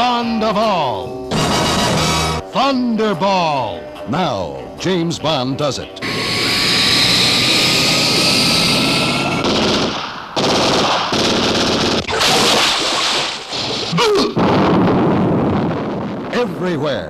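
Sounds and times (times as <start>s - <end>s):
rapid gunfire: 9.4s - 16.2s.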